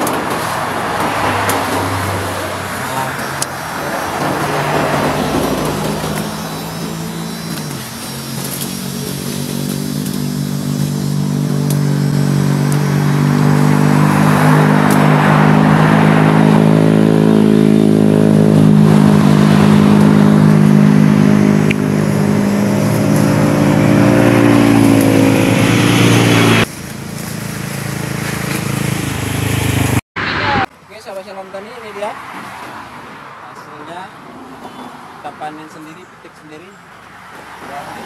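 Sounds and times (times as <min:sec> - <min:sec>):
engine running steadily: 0:00.0 - 0:30.0.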